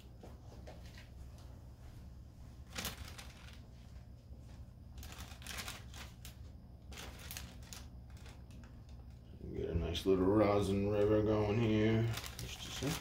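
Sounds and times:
steady low hum: 0:00.0 - 0:13.0
parchment paper crinkling: 0:02.6 - 0:04.2, 0:04.9 - 0:09.3, 0:10.6 - 0:13.0.

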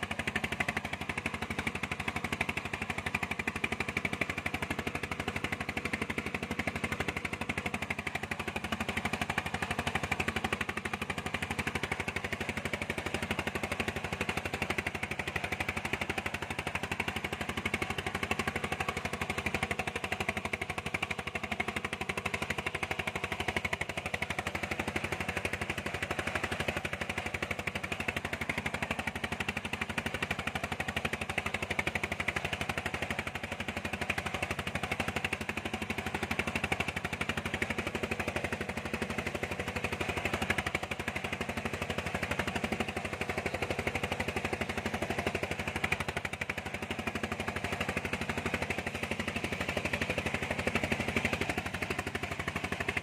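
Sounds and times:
diesel engine knocking steadily: 0:00.0 - 0:53.0.

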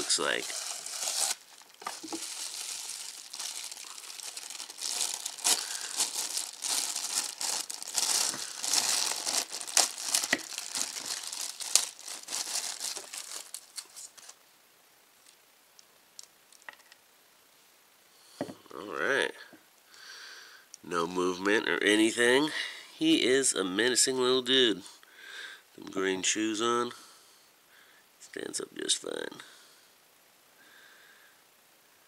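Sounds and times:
plastic packaging crinkling: 0:00.0 - 0:14.4.

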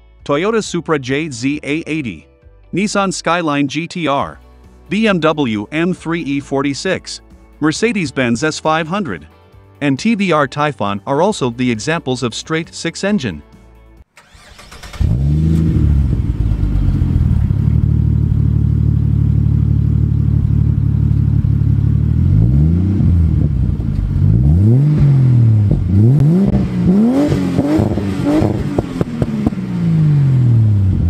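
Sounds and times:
car engine idling and revving: 0:14.2 - 0:31.0.

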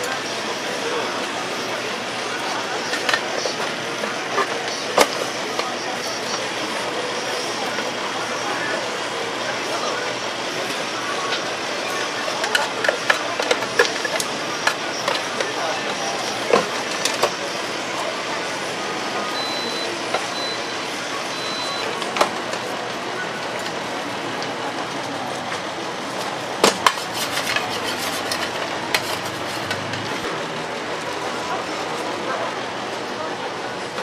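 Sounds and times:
street food stall background noise: 0:00.0 - 0:34.0
faint high beep: 0:19.4 - 0:22.0.

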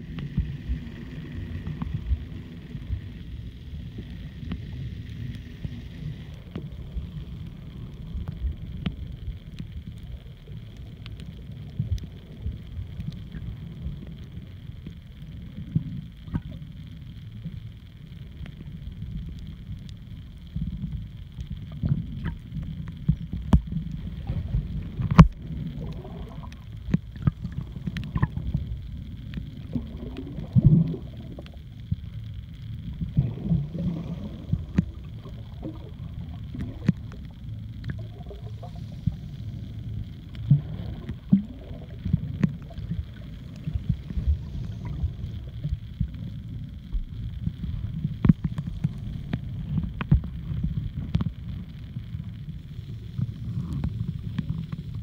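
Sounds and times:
faint high whine: 0:00.0 - 0:55.0
underwater rumble of moving water: 0:00.0 - 0:55.0.

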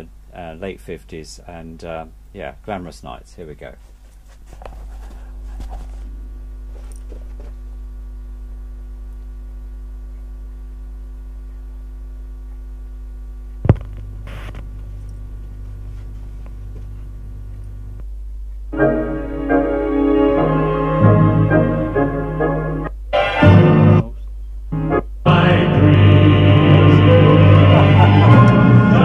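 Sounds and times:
steady mains hum: 0:00.0 - 0:29.0
stylus click on record: 0:11.4 - 0:15.7, 0:17.4 - 0:18.7.

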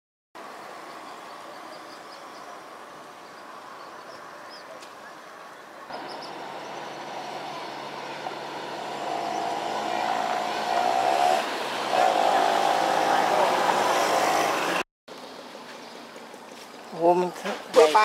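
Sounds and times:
passing road traffic: 0:00.4 - 0:18.0
vehicle engine: 0:05.9 - 0:14.8.

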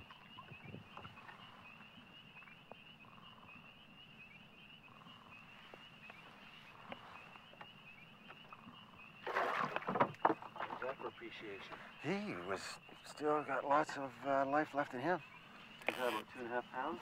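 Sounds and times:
fish splashing in water: 0:09.2 - 0:10.8.

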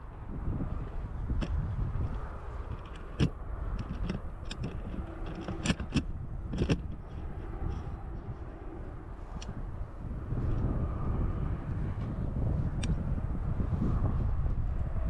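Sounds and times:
bike clicks and rattles: 0:00.0 - 0:15.0
tyres and wind rumble: 0:00.0 - 0:15.0.

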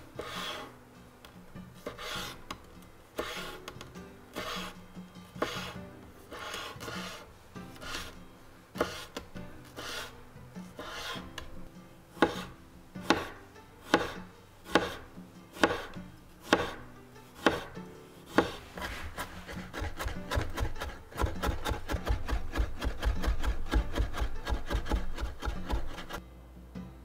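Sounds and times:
knife slicing on cutting board: 0:00.2 - 0:00.8, 0:01.8 - 0:02.6, 0:03.2 - 0:04.8, 0:05.4 - 0:08.2, 0:08.8 - 0:10.2, 0:10.8 - 0:11.5, 0:12.2 - 0:16.8, 0:17.4 - 0:26.2
knife rapid chopping: 0:01.8 - 0:02.4, 0:03.2 - 0:03.7, 0:04.3 - 0:04.8, 0:05.4 - 0:08.2, 0:08.8 - 0:10.2, 0:10.8 - 0:11.3, 0:12.2 - 0:16.8, 0:17.4 - 0:26.2.

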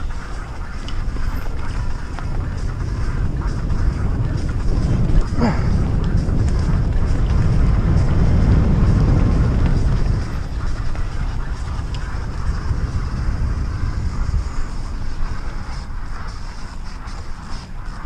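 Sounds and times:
bike tyres rumbling on dirt: 0:00.0 - 0:18.0
wind buffeting microphone: 0:00.0 - 0:18.0.

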